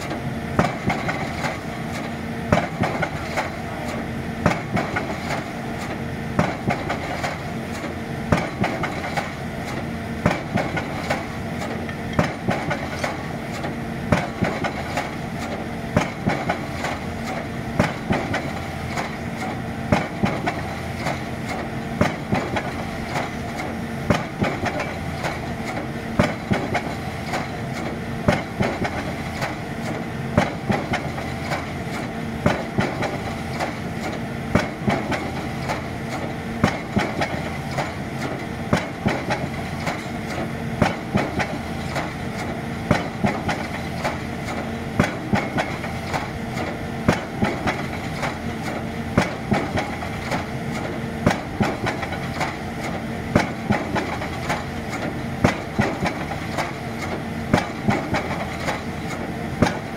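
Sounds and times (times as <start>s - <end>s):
pile-driving hammer blows: 0.0s - 59.9s
rig engine running: 0.0s - 59.9s.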